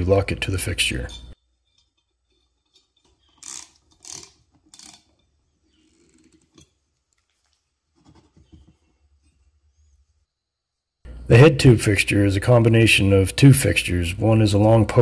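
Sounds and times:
ratchet wrench clicking: 0:03.3 - 0:05.1.

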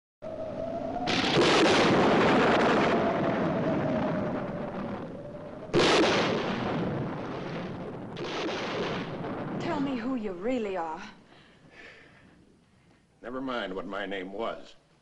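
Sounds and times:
storm wind: 0:00.2 - 0:11.4
thunder claps: 0:00.3 - 0:10.6.

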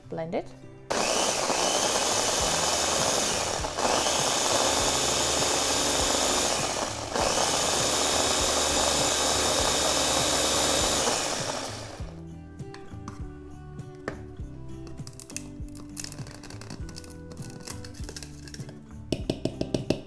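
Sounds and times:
food processor grinding sugar: 0:00.9 - 0:12.2.

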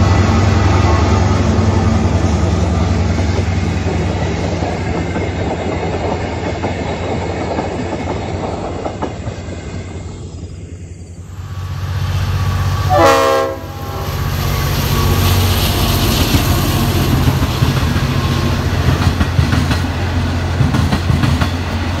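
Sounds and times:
wheels clattering on rails: 0:00.0 - 0:10.2, 0:14.5 - 0:22.0
diesel train engines droning: 0:00.0 - 0:22.0
train horn blast: 0:12.8 - 0:15.2.

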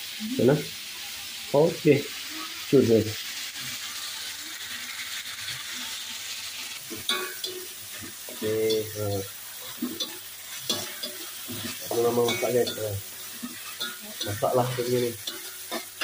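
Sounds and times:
clams sizzling in a wok: 0:00.0 - 0:16.0
spatula scraping a wok: 0:03.3 - 0:16.0.

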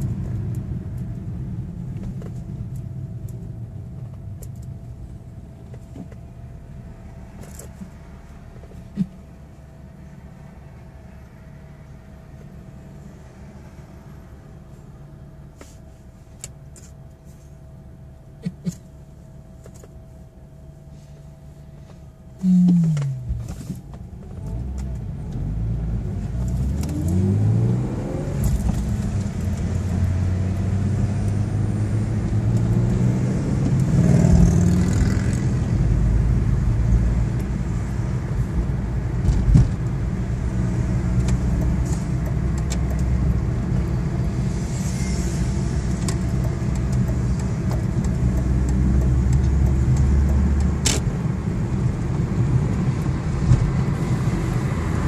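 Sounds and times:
road noise inside car: 0:00.0 - 0:55.0
car engine accelerating: 0:21.9 - 0:55.0.

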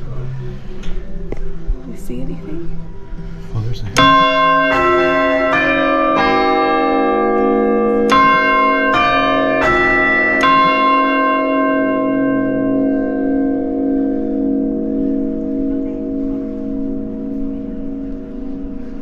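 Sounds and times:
church bells striking: 0:03.9 - 0:19.0
bell hum ringing on: 0:04.0 - 0:19.0.

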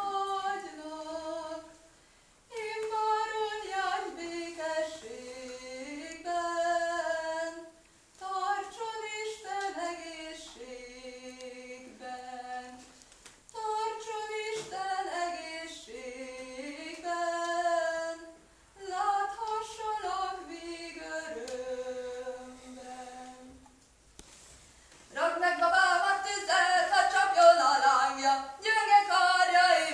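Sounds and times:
woman singing unaccompanied: 0:00.0 - 0:01.8, 0:02.5 - 0:23.6, 0:25.1 - 0:29.9.

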